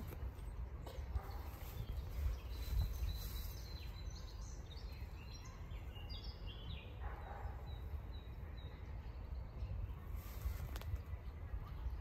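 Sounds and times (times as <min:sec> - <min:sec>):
wind rumble on microphone: 0:00.0 - 0:07.1
birds singing: 0:00.0 - 0:12.0.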